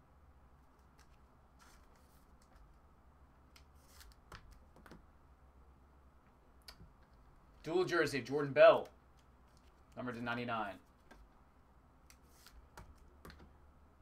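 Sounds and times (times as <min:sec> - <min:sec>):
trading cards clicking and sliding: 0:00.6 - 0:02.8, 0:03.5 - 0:05.0, 0:08.7 - 0:10.0, 0:12.0 - 0:13.6.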